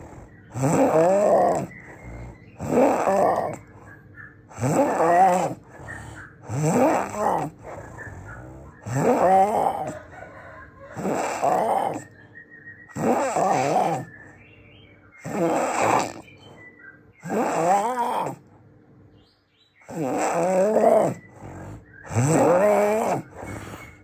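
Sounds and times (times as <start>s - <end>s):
person snoring loudly: 0.0s - 3.6s, 4.5s - 5.8s, 6.4s - 10.0s, 11.0s - 12.1s, 12.9s - 14.1s, 15.2s - 16.3s, 17.2s - 18.5s, 19.8s - 24.0s.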